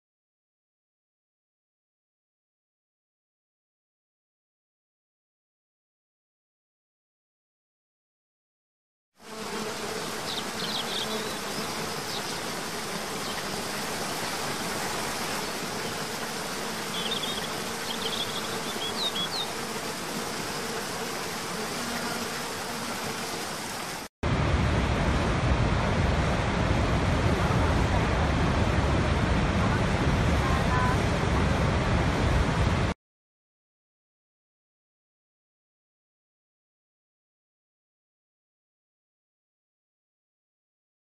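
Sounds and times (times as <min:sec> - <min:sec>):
large waterfall deep rush: 0:24.3 - 0:33.0.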